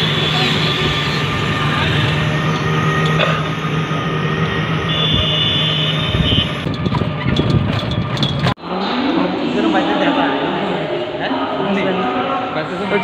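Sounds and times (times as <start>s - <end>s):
high steady tone: 0.0s - 6.8s
auto-rickshaw engine running: 0.0s - 8.6s
road noise: 0.0s - 13.0s.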